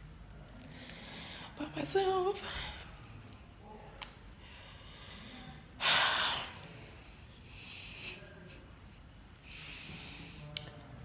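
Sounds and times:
woman breathing softly: 0.6s - 1.6s, 4.4s - 8.3s.

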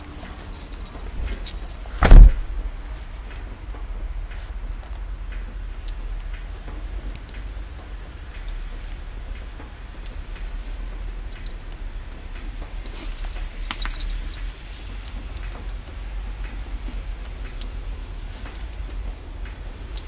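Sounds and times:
low rumble: 0.0s - 3.0s
dog tags jingling: 0.0s - 3.2s, 13.0s - 14.9s
loud thump: 2.0s - 2.6s.

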